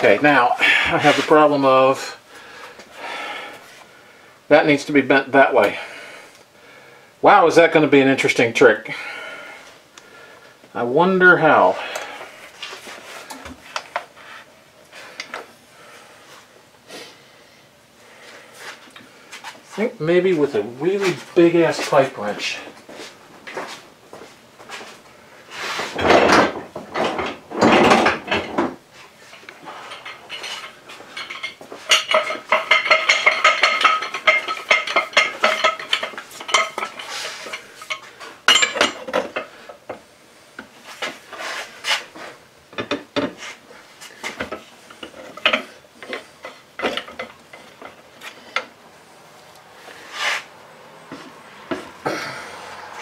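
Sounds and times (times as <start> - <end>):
metal tools clanking on workbench: 29.8 - 39.5, 44.3 - 48.7.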